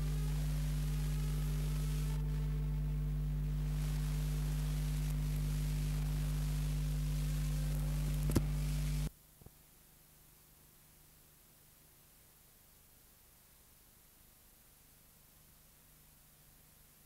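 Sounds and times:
electrical hum: 0:00.0 - 0:09.1
film soundtrack hiss: 0:00.0 - 0:17.0
sharp click: 0:08.2 - 0:08.6.

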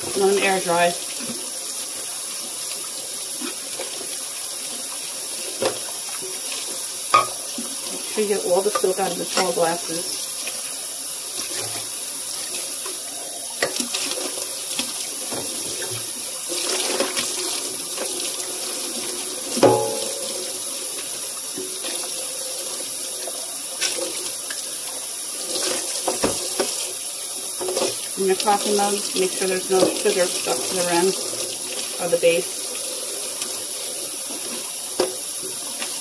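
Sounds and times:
faucet running into metal sink: 0:00.0 - 0:36.0
dishes clinking and knocking: 0:07.1 - 0:07.5, 0:19.6 - 0:20.3.

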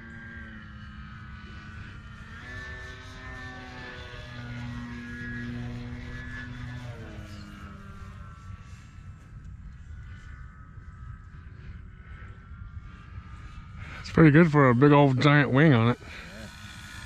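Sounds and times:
model plane motor whining: 0:00.0 - 0:17.0.

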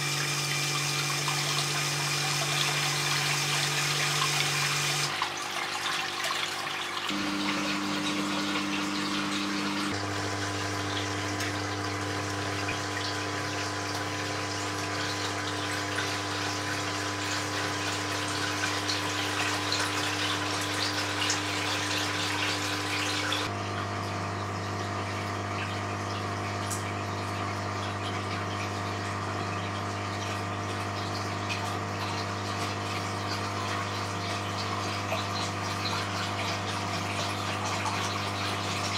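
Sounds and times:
water gushing and splashing: 0:00.0 - 0:23.6.

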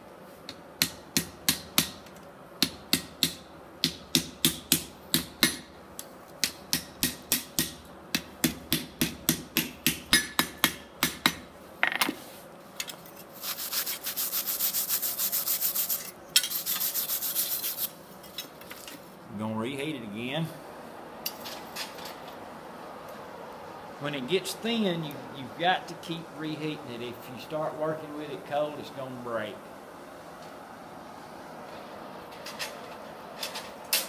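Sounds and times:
hammer striking steel on anvil: 0:06.4 - 0:12.0
wire brush scrubbing metal: 0:13.1 - 0:18.0.

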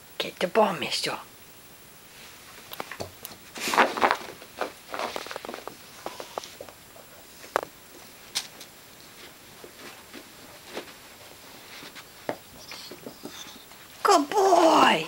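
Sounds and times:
dog scuffling on carpet: 0:03.5 - 0:06.7, 0:09.0 - 0:14.0.

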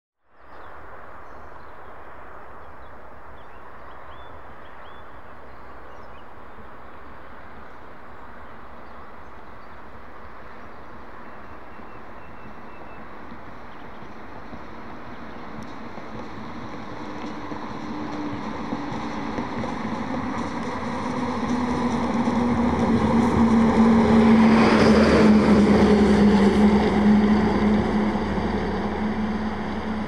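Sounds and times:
traffic on a wet road: 0:00.9 - 0:30.0
fire truck approaching: 0:13.2 - 0:30.0.

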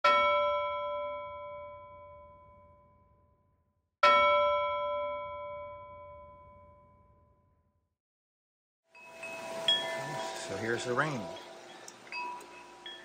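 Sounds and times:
bell ringing: 0:09.0 - 0:13.0.

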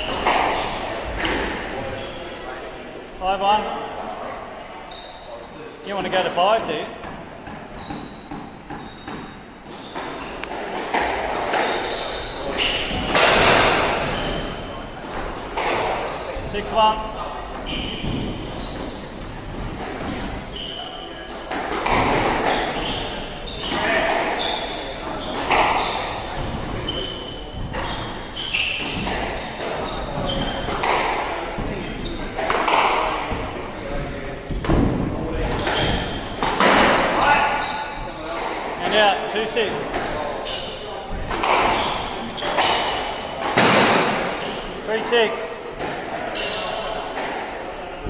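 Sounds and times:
shoes squeaking on wooden floor: 0:00.0 - 0:02.4, 0:04.8 - 0:48.0
squash ball smacking: 0:21.3 - 0:22.9, 0:27.5 - 0:31.3, 0:34.2 - 0:37.2, 0:41.1 - 0:44.4
squash ball knocks: 0:21.5 - 0:22.7.

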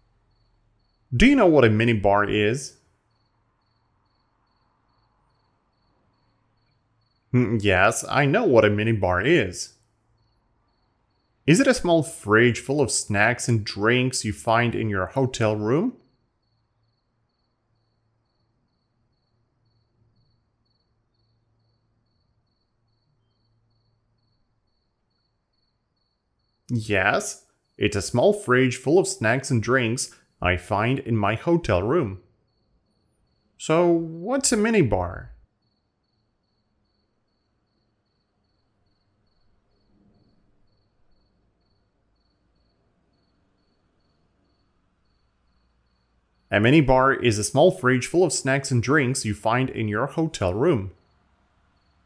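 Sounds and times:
faint low hum: 0:00.0 - 0:52.0
faint high-pitched chirp: 0:15.9 - 0:32.8.

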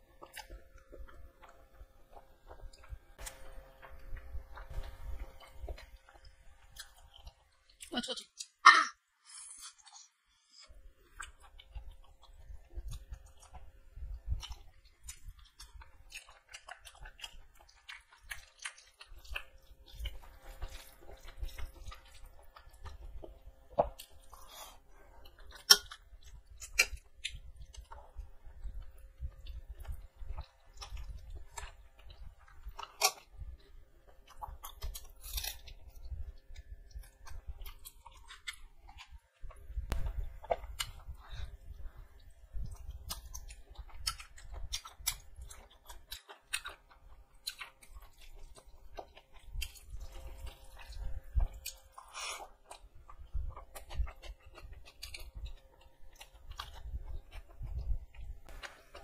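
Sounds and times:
wet chewing and lip smacks: 0:09.6 - 0:59.0.

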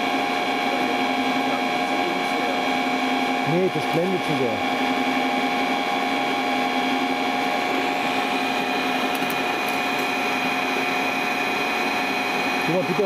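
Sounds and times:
motor-generator humming and whining: 0:00.0 - 0:13.0.

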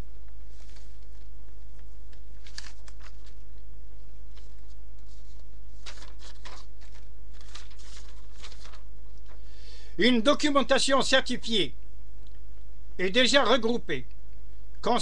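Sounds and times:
low electrical hum: 0:00.0 - 0:15.0
soft rustles and clicks: 0:00.1 - 0:09.5.

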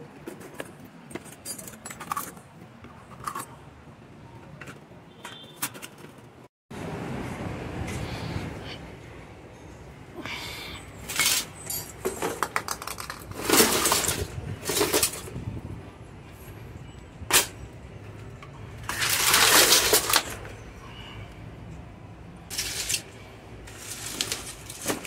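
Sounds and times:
objects rattling and clattering: 0:00.1 - 0:03.6, 0:11.0 - 0:15.6, 0:18.2 - 0:20.6, 0:22.5 - 0:25.0
scraping on tiled floor: 0:22.5 - 0:25.0.

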